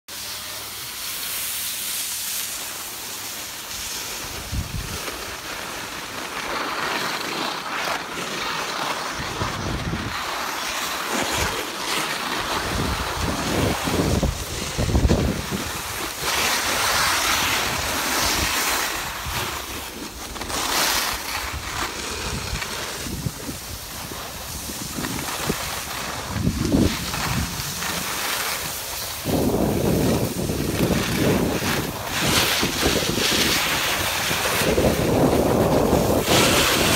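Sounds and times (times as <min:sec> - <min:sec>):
skis sliding on snow: 0:00.1 - 0:36.9
wind buffeting microphone: 0:12.6 - 0:19.6, 0:21.5 - 0:36.9.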